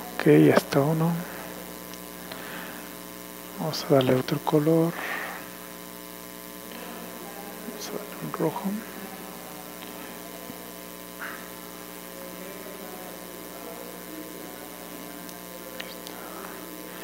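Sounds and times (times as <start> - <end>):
background hiss: 0.0 - 9.2
electrical hum: 0.0 - 17.0.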